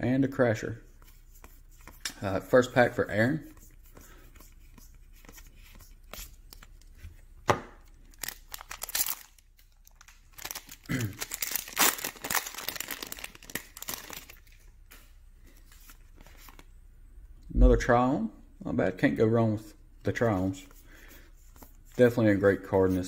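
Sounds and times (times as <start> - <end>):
foil wrapper tearing and crinkling: 8.1 - 14.5
sharp crack of wrapper: 8.1 - 14.5.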